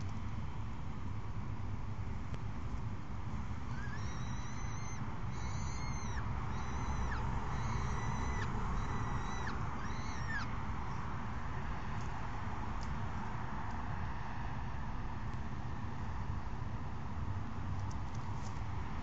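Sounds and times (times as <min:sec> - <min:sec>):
low background rumble: 0:00.0 - 0:14.0
falcon calling: 0:03.5 - 0:11.0.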